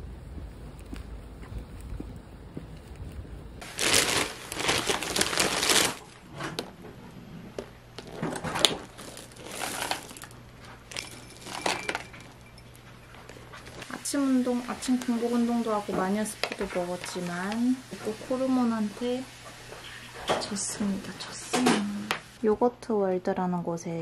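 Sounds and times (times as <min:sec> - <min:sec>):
plastic bag crinkling: 0:03.6 - 0:06.7, 0:07.9 - 0:17.6.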